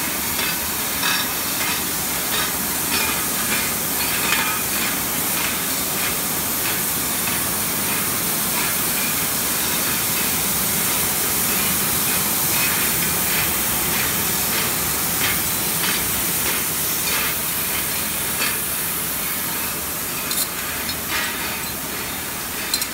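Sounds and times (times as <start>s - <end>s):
gas burner flames hissing: 0.0s - 22.9s
light clinks of machine and glass: 20.2s - 22.9s.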